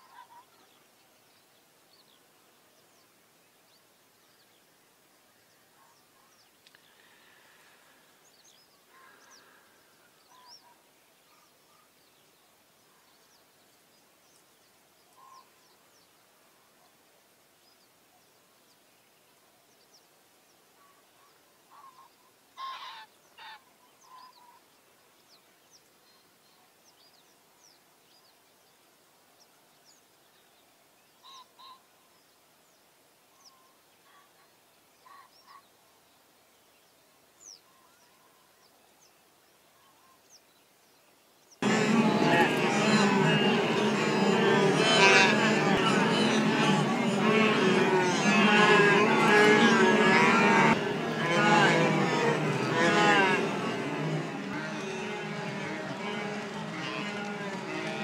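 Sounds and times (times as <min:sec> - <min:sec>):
faint bird chirps and calls: 0:00.0 - 0:17.0, 0:17.6 - 0:28.8, 0:29.4 - 0:41.7
low hiss: 0:00.0 - 0:54.0.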